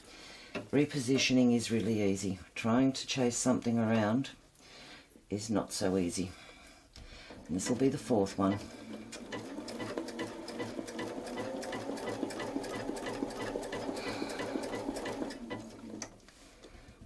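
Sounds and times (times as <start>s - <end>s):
sewing machine stitching: 7.3s - 16.2s.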